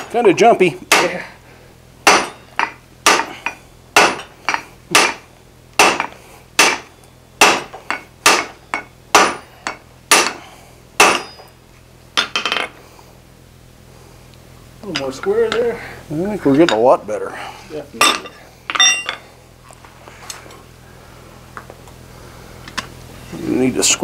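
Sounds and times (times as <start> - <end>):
hammers striking steel on anvil: 0.8 - 1.3, 2.0 - 11.6, 18.0 - 19.2.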